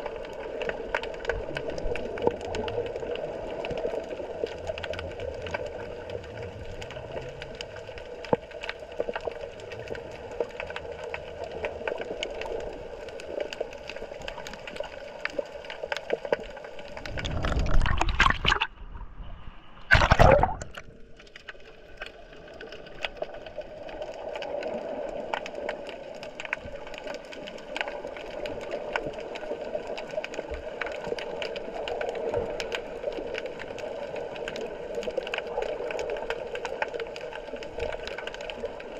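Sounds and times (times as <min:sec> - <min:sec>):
crackling clicks: 0:00.0 - 0:18.7, 0:19.9 - 0:38.9
underwater hum: 0:00.0 - 0:38.9
water rushing surges: 0:16.7 - 0:18.8, 0:19.9 - 0:20.9.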